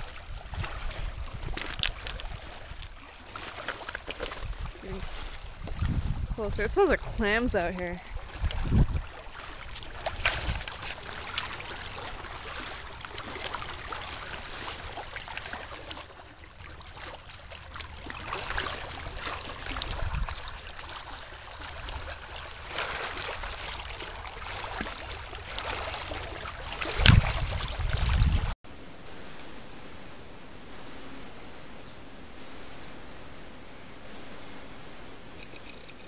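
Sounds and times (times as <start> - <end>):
wind rumble on microphone: 0.0 - 3.0, 4.2 - 13.2, 18.9 - 20.8, 26.0 - 36.0
small waves lapping on rocks: 0.0 - 28.6.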